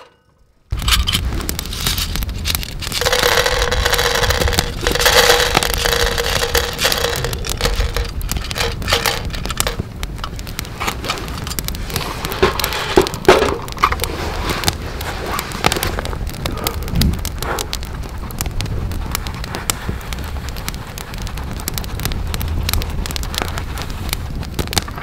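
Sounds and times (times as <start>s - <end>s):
beans clicking: 0.8s - 10.4s
coffee beans rattling onto board: 3.0s - 9.8s.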